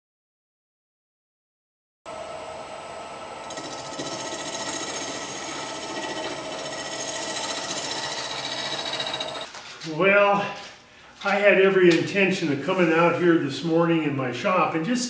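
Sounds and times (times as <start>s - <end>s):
wood lathe motor whine: 2.1s - 9.5s.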